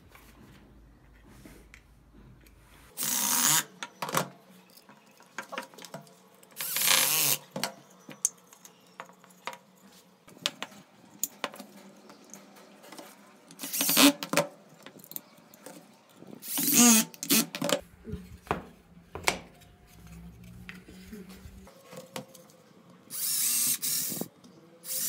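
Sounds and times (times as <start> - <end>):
cordless drill driving screws: 3.0 - 3.7, 6.6 - 7.5, 13.6 - 14.3, 16.4 - 17.6, 23.1 - 25.0
wood and screws clicking: 3.0 - 9.7, 10.4 - 15.8.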